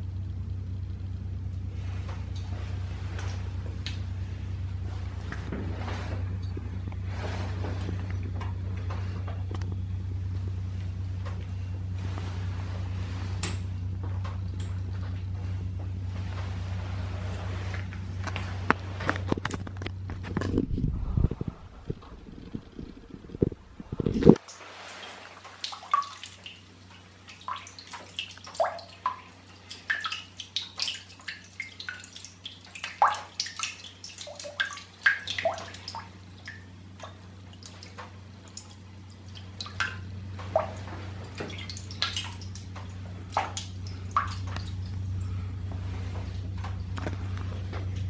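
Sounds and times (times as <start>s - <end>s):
steady low hum: 0.0s - 48.0s
water splashing into urinal: 24.0s - 45.4s.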